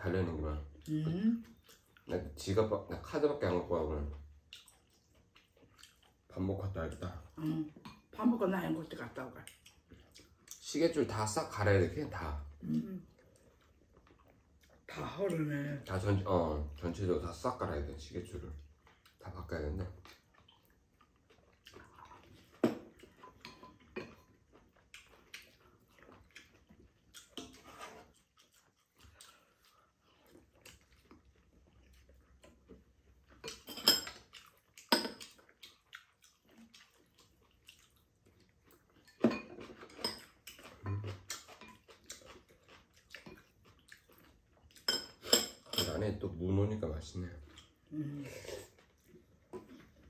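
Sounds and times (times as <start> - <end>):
utensils clinking on ceramic bowls: 23.2 - 24.3, 33.4 - 34.2, 39.1 - 41.8, 44.8 - 46.2.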